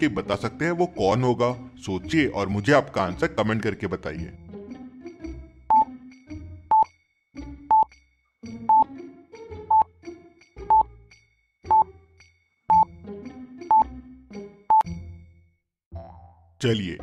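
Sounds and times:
quiet background music: 0:00.0 - 0:15.2.

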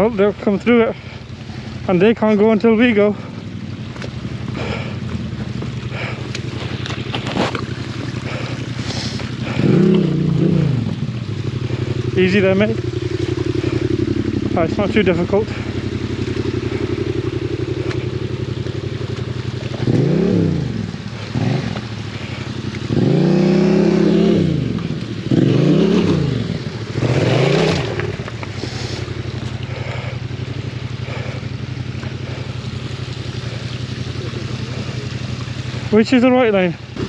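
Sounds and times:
motorcycle engine idling and revving: 0:00.0 - 0:37.0.

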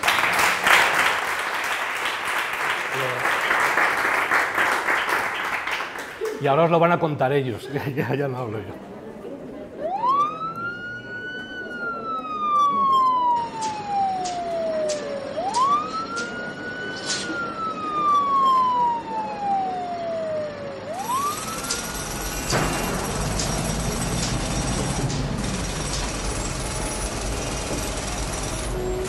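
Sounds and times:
siren wailing: 0:09.4 - 0:29.0
loud continuous rattling: 0:21.0 - 0:29.0.

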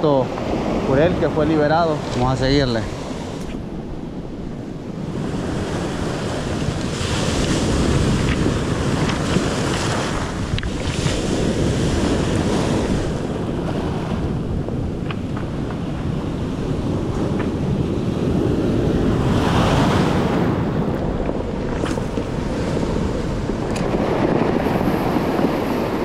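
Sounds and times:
wind buffeting microphone: 0:00.0 - 0:26.0
surf washing over cobbles: 0:21.2 - 0:26.0.

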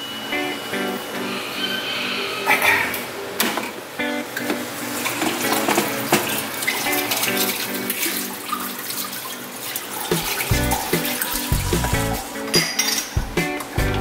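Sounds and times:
background music with plucked melody: 0:04.0 - 0:08.6, 0:10.1 - 0:14.0.

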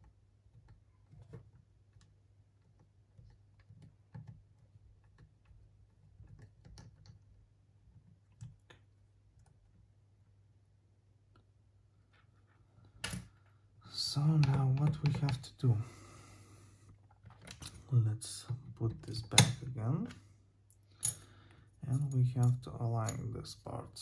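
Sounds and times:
small parts clicking and tapping: 0:00.0 - 0:09.8, 0:14.3 - 0:15.5, 0:16.9 - 0:17.8, 0:18.6 - 0:23.3.

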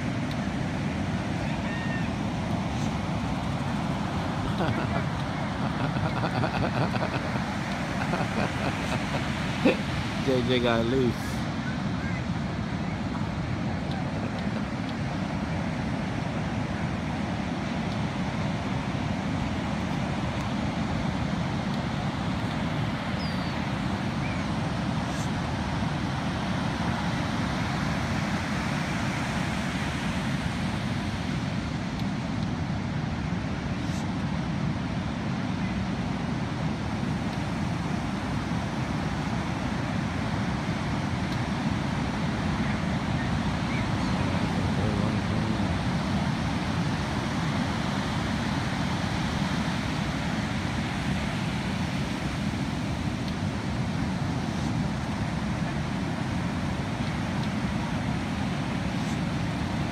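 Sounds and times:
ocean waves breaking on beach: 0:00.0 - 0:59.9.

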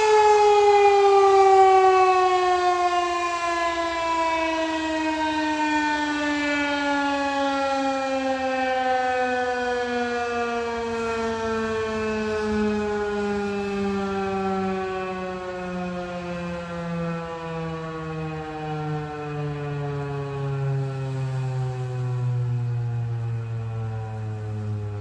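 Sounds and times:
warning siren winding down: 0:00.0 - 0:25.0.

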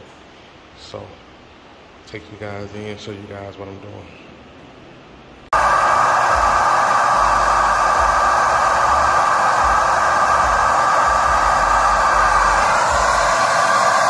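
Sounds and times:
vacuum cleaner running: 0:05.5 - 0:14.0.

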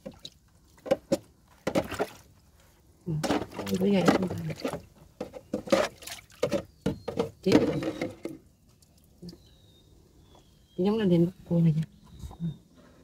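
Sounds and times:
knocks and scrapes in plastic hull: 0:00.0 - 0:02.3, 0:03.1 - 0:08.5.

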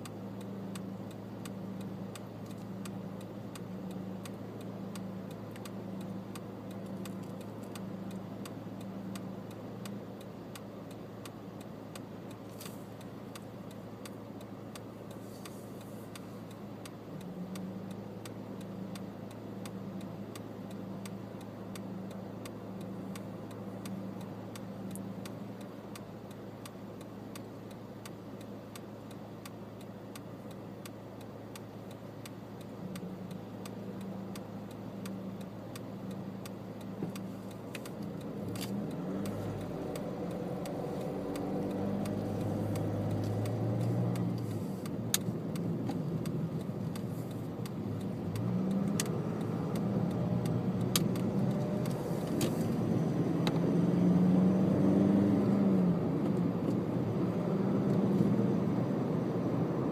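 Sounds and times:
faint regular ticking: 0:00.0 - 0:58.9
car engine revving through gears: 0:32.8 - 0:59.9.

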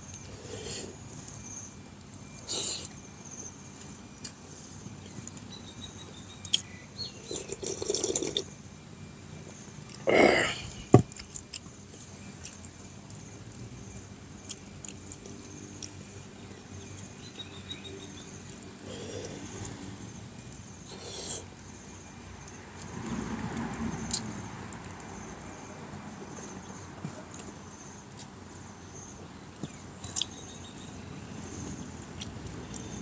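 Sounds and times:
insects humming: 0:00.0 - 0:33.0
chewing and mouth noises: 0:06.4 - 0:08.5, 0:29.6 - 0:30.5
slurping broth: 0:07.3 - 0:08.4.

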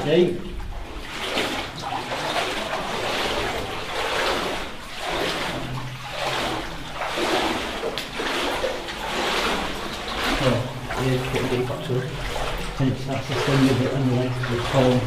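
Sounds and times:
water sloshing around wading legs: 0:00.0 - 0:15.0.

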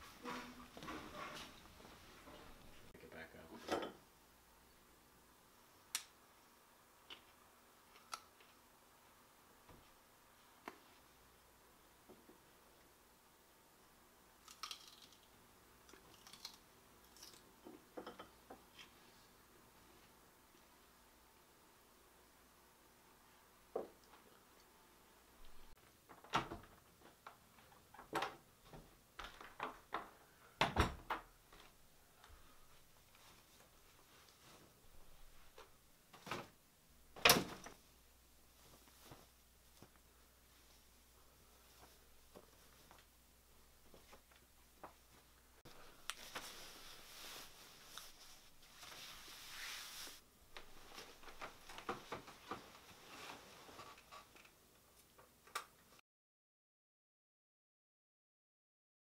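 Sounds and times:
clothing rustling: 0:32.4 - 0:36.3, 0:38.5 - 0:43.1, 0:43.8 - 0:54.2
bedding rustling: 0:38.5 - 0:43.0, 0:44.9 - 0:54.0.

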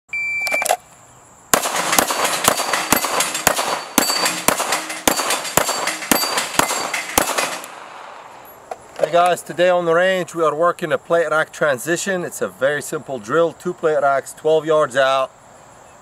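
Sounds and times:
shot timer beep: 0:00.1 - 0:00.7
rapid pistol fire: 0:01.5 - 0:08.2
steel plates ringing: 0:01.8 - 0:07.6.

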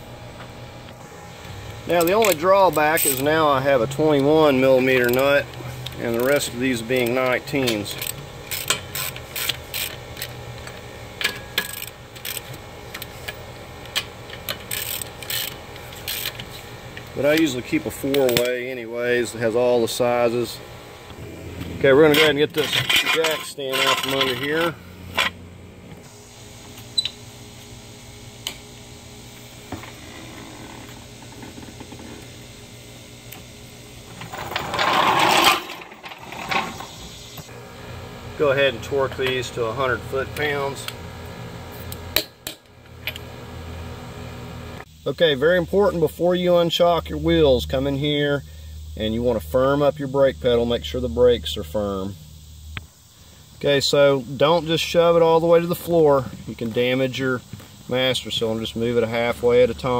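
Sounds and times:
background hum: 0:00.0 - 0:59.9
hand ratchet clicking: 0:05.0 - 0:10.3, 0:11.3 - 0:13.1, 0:13.9 - 0:16.4
jack wheels rolling on concrete: 0:21.2 - 0:25.3, 0:34.0 - 0:37.4.

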